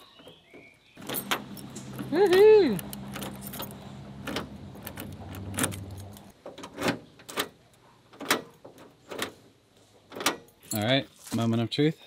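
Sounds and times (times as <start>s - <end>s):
metallic door latch clicks: 1.0s - 9.4s.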